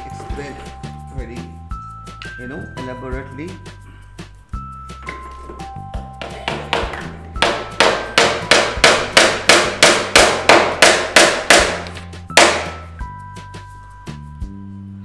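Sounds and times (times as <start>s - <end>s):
hard ringing knocks: 6.2s - 13.0s.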